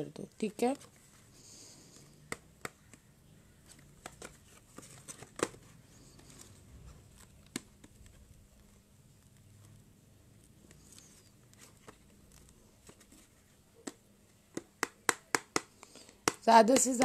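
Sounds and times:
cardboard boxes rustling: 3.7s - 7.3s.

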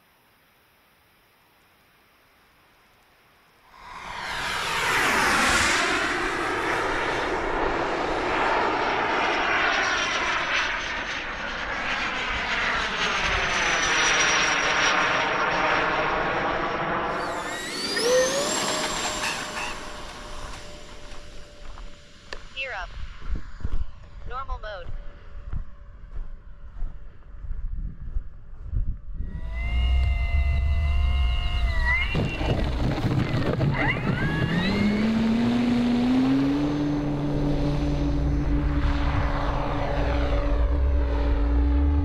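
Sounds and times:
model airplane engine passing: 3.7s - 24.3s, 29.1s - 42.0s
high whine: 3.7s - 42.0s.

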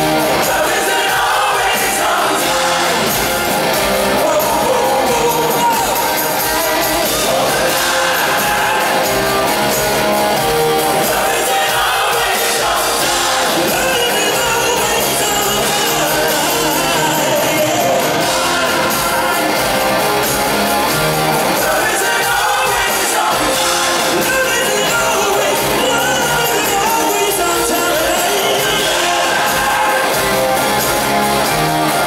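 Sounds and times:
live rock band playing: 0.0s - 32.0s
male singer singing: 0.3s - 3.0s, 4.1s - 9.4s, 11.0s - 19.6s, 21.6s - 30.4s.

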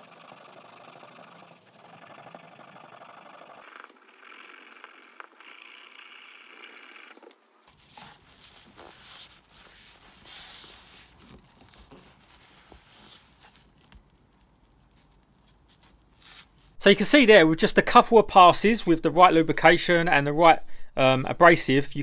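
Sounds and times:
cloth wiping: 7.7s - 16.8s.

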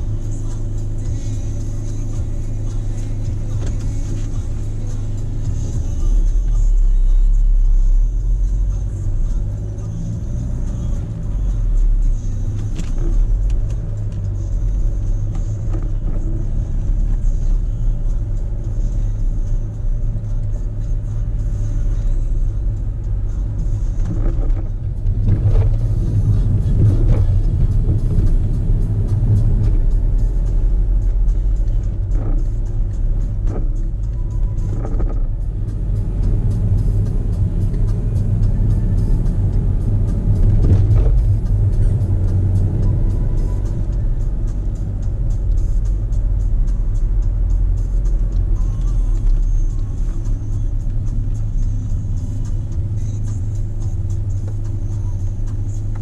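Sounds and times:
car engine and road rumble: 0.0s - 56.0s.

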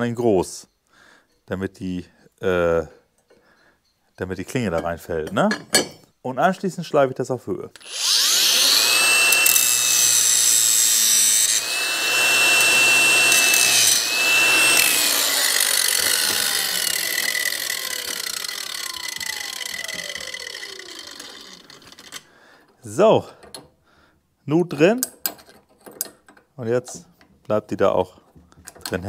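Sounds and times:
angle grinder cutting steel: 7.8s - 22.3s
grinder winding down: 7.8s - 22.3s.

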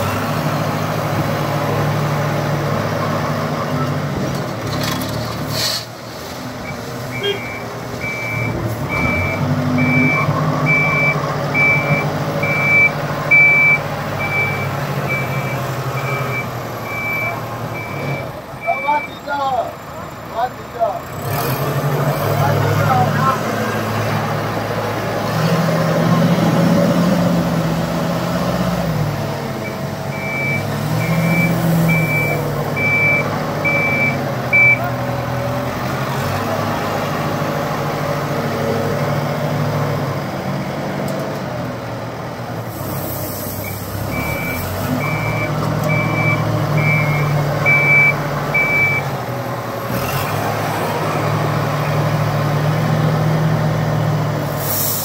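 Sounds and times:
diesel engine revving: 0.0s - 55.0s
reversing alarm beeping: 6.6s - 19.2s, 29.6s - 34.9s, 43.6s - 49.1s
air hissing: 54.5s - 55.0s.

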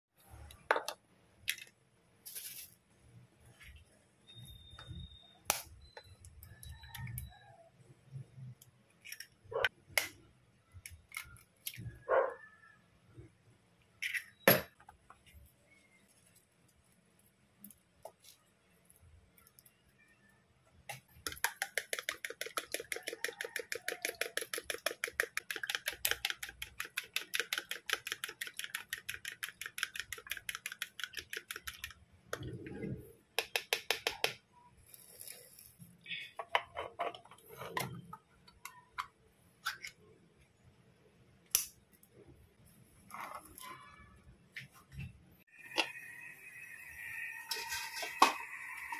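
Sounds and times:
fork beating eggs in plastic bowl: 20.9s - 32.0s.

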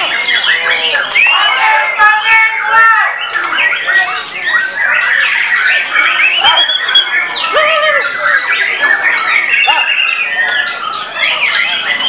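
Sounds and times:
songbird singing varied whistles: 3.2s - 12.0s.

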